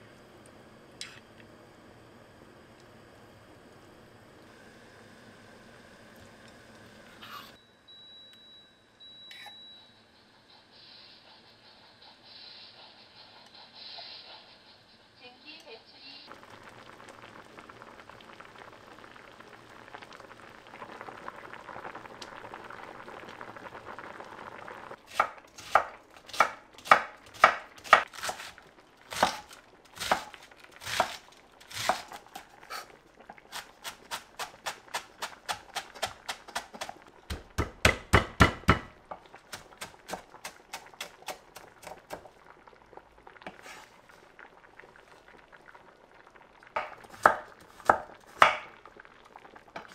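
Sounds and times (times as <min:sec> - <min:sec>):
stew bubbling in a pot: 0:16.3 - 0:49.9
knife chopping on wooden board: 0:33.9 - 0:38.9.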